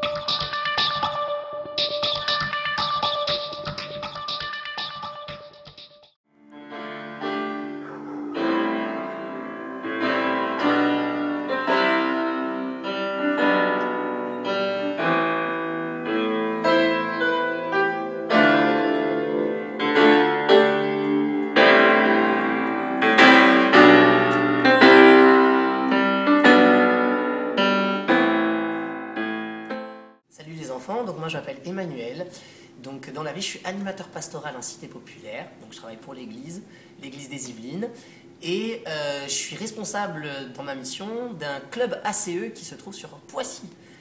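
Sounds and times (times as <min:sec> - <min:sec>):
electronic keyboard piano chords: 0:06.4 - 0:30.2.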